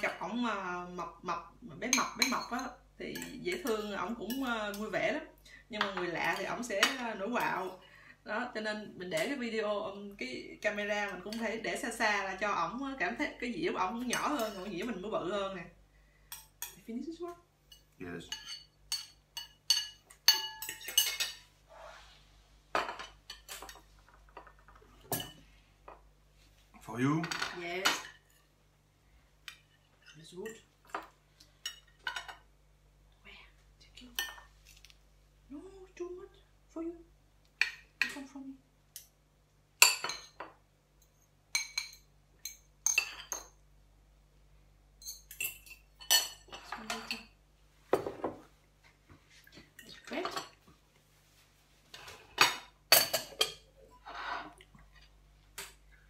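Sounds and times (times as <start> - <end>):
dishes and cutlery clinking: 17.7 - 21.5, 22.7 - 26.0, 39.8 - 43.6, 45.0 - 48.5, 51.9 - 55.8
metal utensils clinking on plates: 17.7 - 21.5, 22.8 - 25.5
soft scrape: 21.5 - 22.6.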